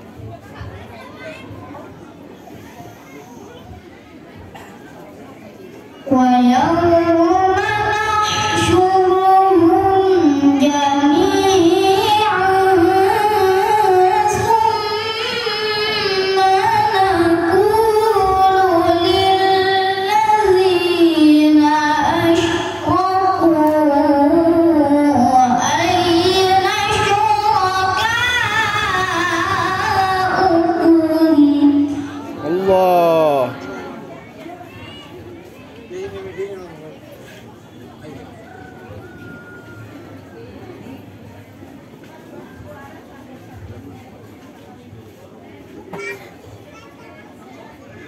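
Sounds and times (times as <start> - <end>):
boy reciting melodically: 6.1 - 33.9.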